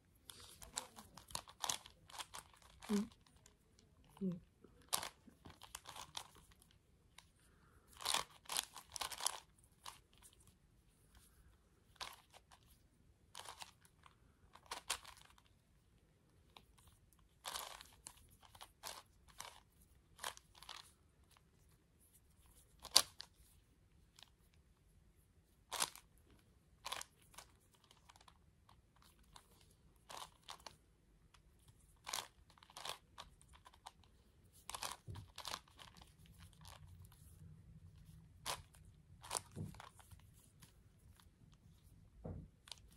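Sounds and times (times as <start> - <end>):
puzzle cube turning clicks: 0.2 - 4.2, 4.8 - 7.3, 7.9 - 10.4, 11.9 - 15.5, 16.5 - 21.4, 22.4 - 23.3, 29.0 - 37.4, 38.0 - 41.9.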